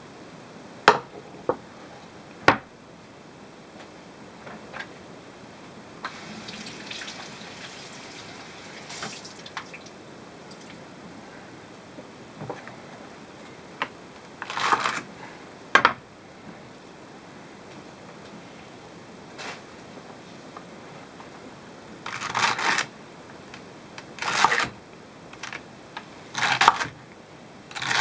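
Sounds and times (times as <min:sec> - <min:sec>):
water dripping and splashing: 0:06.1 - 0:10.8
rustle: 0:17.7 - 0:23.6.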